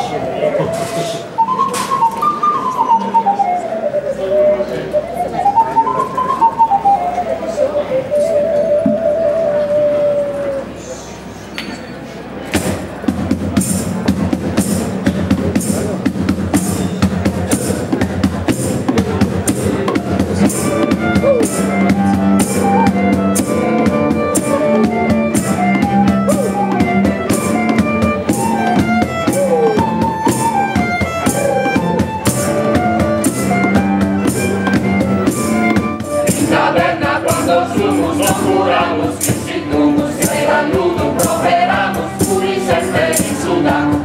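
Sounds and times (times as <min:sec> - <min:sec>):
cajon beating rhythm: 0:00.0 - 0:10.1, 0:12.4 - 0:44.0
cellos and violin melody: 0:19.8 - 0:44.0
choir singing: 0:36.1 - 0:44.0.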